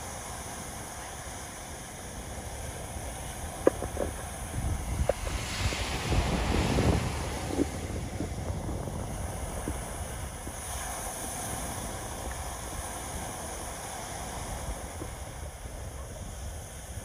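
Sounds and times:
ocean surf on beach: 0.0s - 17.0s
wind on microphone: 0.0s - 17.0s.

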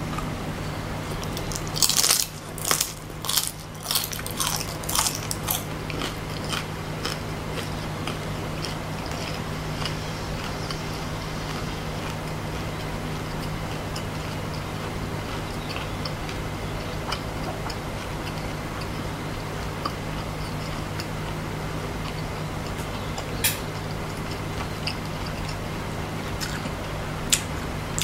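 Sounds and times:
steady low hum: 0.0s - 28.0s
person crunching fried insect: 1.2s - 19.0s.

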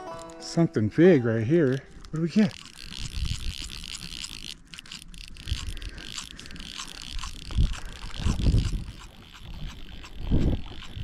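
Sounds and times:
fly reel clicking: 0.0s - 11.0s
wind buffeting microphone: 2.8s - 4.1s, 5.2s - 11.0s.

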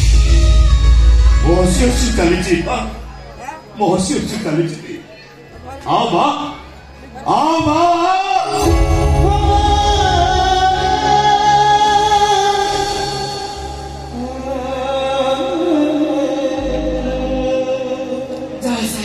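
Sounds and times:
instrumental backing music: 0.0s - 3.8s, 8.2s - 19.0s
person singing long held notes: 8.3s - 19.0s.

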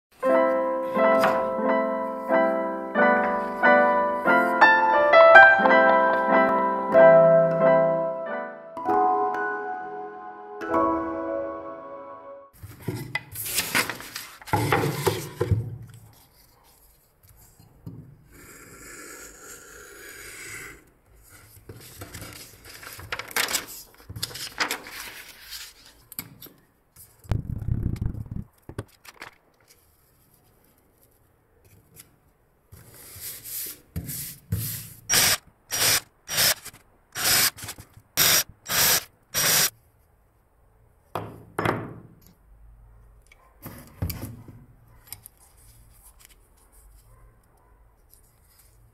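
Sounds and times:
paper rustling and scraping: 12.6s - 17.6s, 21.3s - 26.2s, 28.8s - 32.1s
quick rubbing strokes on paper: 32.8s - 35.0s.

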